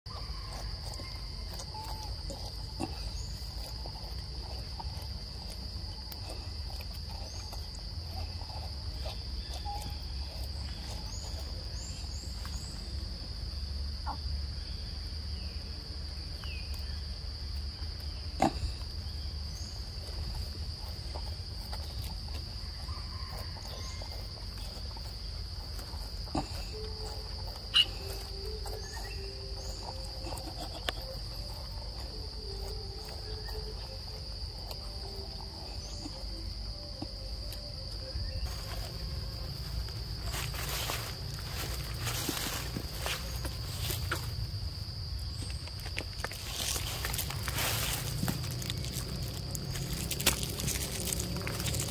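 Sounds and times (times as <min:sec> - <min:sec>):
insects droning: 0:00.1 - 0:51.9.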